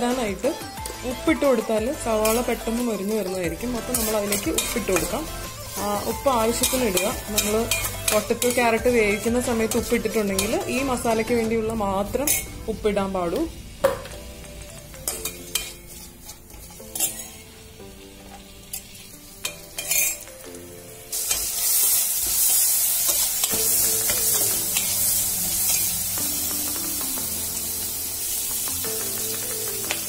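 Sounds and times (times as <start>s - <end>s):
loud steady sizzle: 0.0s - 30.0s
onions frying in oil: 0.0s - 30.0s
metal spoon clinking against pan: 6.4s - 8.8s, 12.2s - 12.5s, 15.0s - 17.4s, 18.7s - 20.3s.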